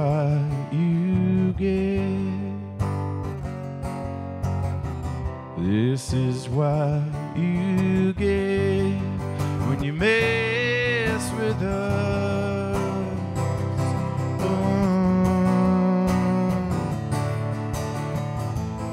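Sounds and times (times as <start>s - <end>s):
man singing: 0.0s - 2.9s, 5.5s - 17.4s
strummed acoustic guitar: 0.0s - 18.9s.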